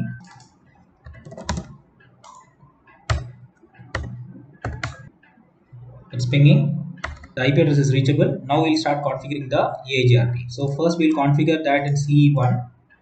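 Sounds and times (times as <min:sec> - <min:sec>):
computer keyboard keystrokes: 0:00.1 - 0:05.1, 0:07.0 - 0:07.4.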